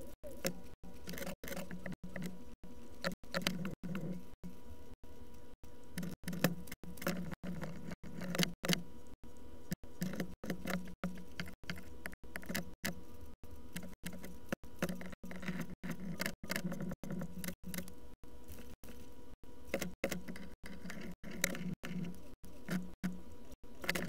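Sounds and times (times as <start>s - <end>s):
steady low hum: 0.0s - 24.0s
plastic parts clicking and rattling: 13.7s - 18.0s, 19.7s - 24.0s.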